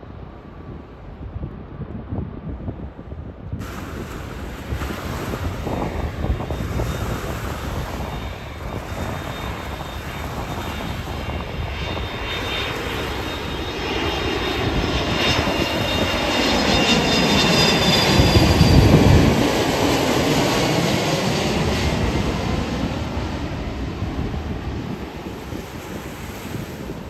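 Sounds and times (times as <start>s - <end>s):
jet engines rumbling overhead: 0.0s - 27.0s
high whining jet tones: 3.6s - 23.4s.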